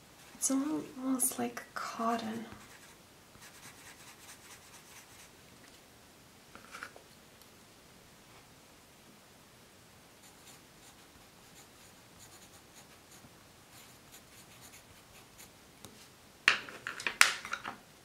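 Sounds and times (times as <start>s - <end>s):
pencil scratching on paper: 2.5s - 5.3s, 10.2s - 15.6s
pencils knocking and clattering: 16.5s - 17.8s.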